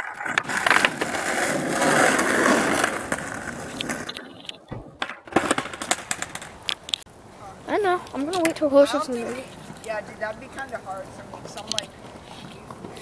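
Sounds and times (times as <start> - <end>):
skateboard deck clacking: 0.0 - 7.0
skateboard wheels rolling on asphalt: 0.0 - 13.0.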